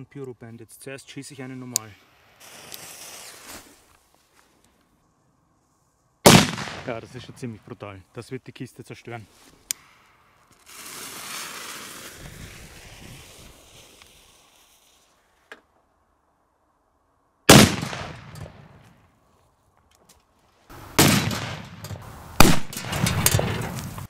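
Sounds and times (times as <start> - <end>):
fuse hissing and sparking: 2.3 - 3.8, 10.6 - 15.2
firecracker bang: 6.3 - 7.2, 17.5 - 18.8, 20.7 - 24.0
loud bangs and sharp crack: 6.3 - 7.3, 17.5 - 18.9, 20.9 - 24.0.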